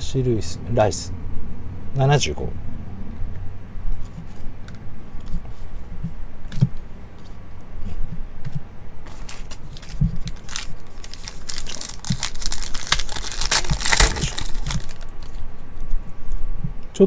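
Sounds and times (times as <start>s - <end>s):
low hum: 0.0s - 16.9s
foil pack crinkling: 9.1s - 15.5s.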